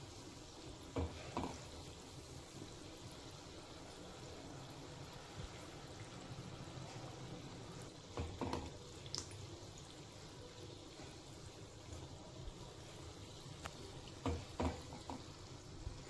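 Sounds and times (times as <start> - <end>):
food sizzling in oil: 0.0 - 16.0
metal spoon knocking on pan: 14.2 - 15.3.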